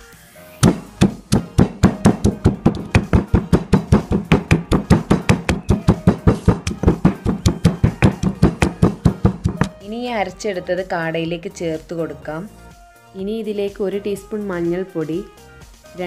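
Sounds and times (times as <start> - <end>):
stone pestle pounding in mortar: 0.6 - 9.8.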